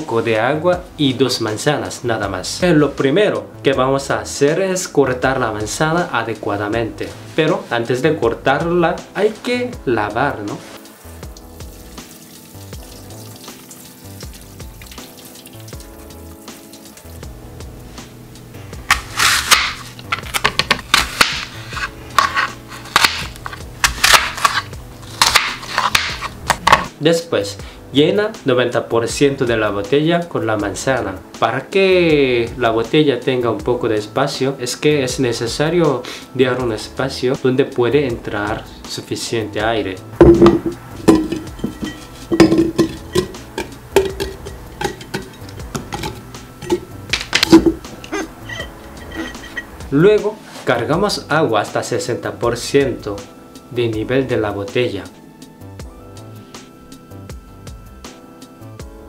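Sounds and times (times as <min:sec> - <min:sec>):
knife slicing apple: 0:18.8 - 0:26.9, 0:40.2 - 0:49.6
knife knocking on cutting board: 0:40.2 - 0:47.9.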